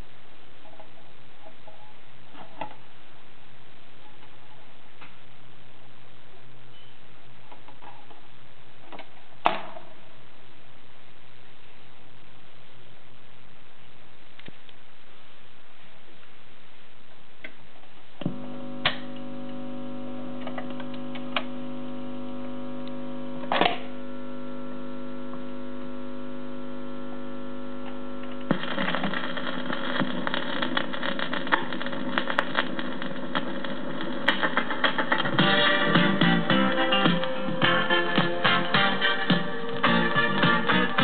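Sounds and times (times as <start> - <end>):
amplifier hum: 0.0 - 41.0
guitar music from speaker: 35.2 - 41.0.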